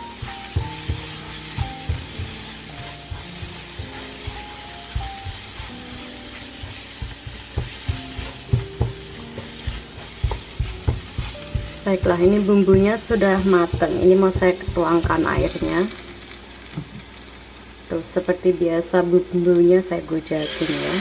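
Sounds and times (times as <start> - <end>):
spice paste sizzling in oil: 0.0 - 21.0
spatula knocking against pan: 0.2 - 15.0.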